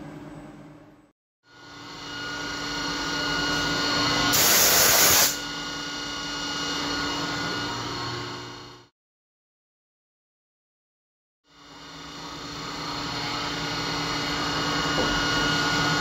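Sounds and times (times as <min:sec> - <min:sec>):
machine spindle whine: 0:01.5 - 0:04.8
loud hiss: 0:04.4 - 0:05.4.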